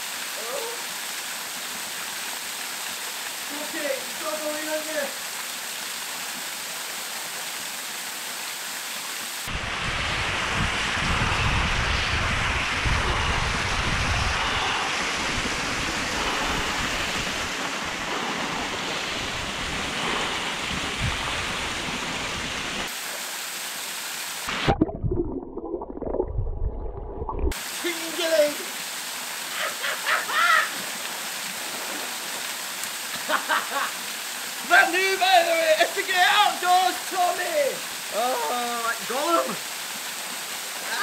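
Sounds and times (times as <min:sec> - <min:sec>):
small waterfall pouring: 0:00.0 - 0:24.8, 0:27.5 - 0:41.0
underwater bubbling: 0:24.5 - 0:27.6.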